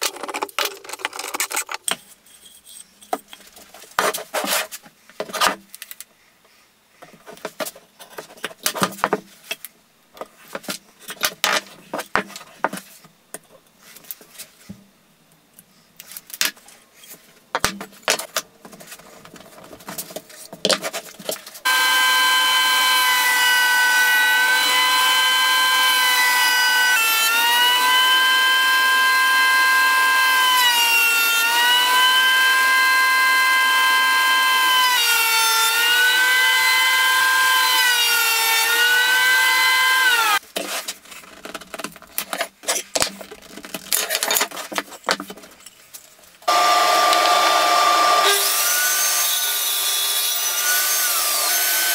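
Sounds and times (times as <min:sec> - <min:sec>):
clicks and tape noises: 0:00.0 - 0:06.1
thickness planer whining: 0:21.6 - 0:40.4, 0:46.5 - 0:51.9.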